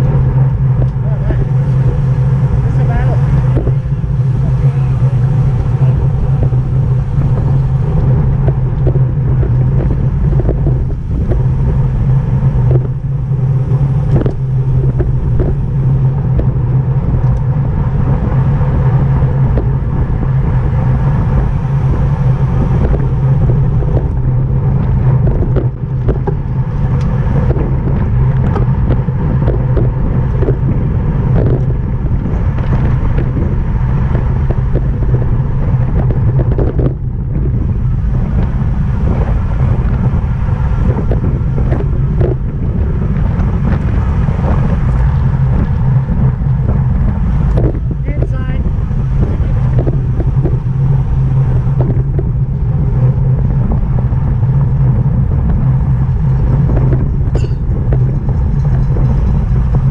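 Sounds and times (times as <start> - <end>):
constant low hum: 0.0 - 59.9
wind and road rush of bicycle: 0.0 - 59.9.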